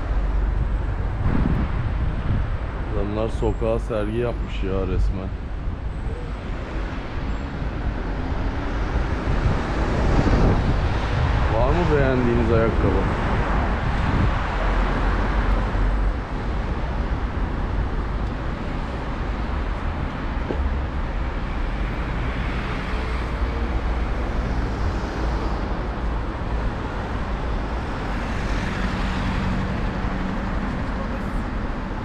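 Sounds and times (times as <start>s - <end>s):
heavy low rumble: 0.0s - 3.2s
city street traffic: 0.0s - 32.0s.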